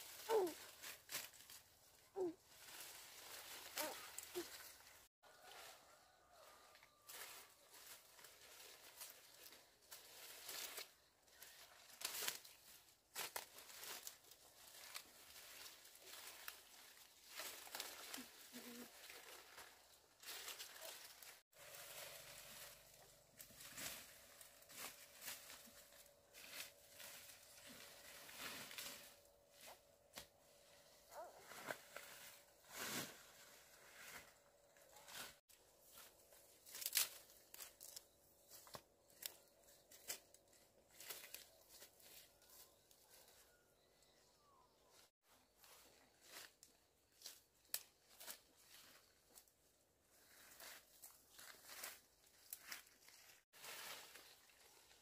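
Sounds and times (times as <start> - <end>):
rustling and crackling: 0.0 - 5.1, 7.1 - 43.4.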